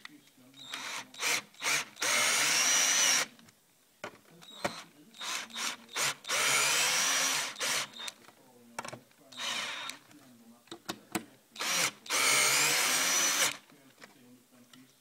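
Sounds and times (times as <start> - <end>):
cordless drill driving screws: 0.6 - 3.4, 4.6 - 8.1, 9.4 - 10.0, 11.6 - 13.6.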